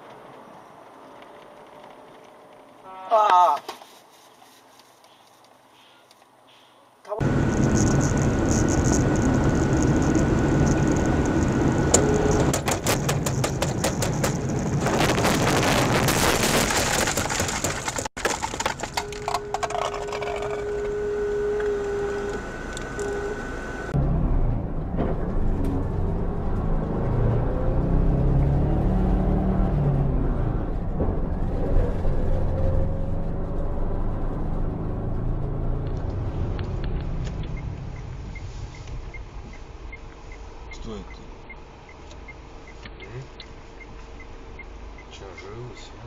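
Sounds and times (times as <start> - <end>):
road and engine noise in car: 0.0 - 16.0, 17.2 - 46.0
dense crackling and clicking: 7.2 - 20.8.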